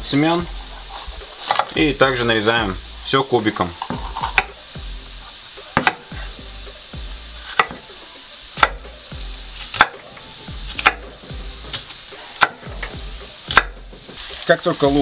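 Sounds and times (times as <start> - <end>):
onion sizzling in oil: 0.0 - 15.0
knife knocking on cutting board: 5.8 - 6.2, 7.6 - 7.8.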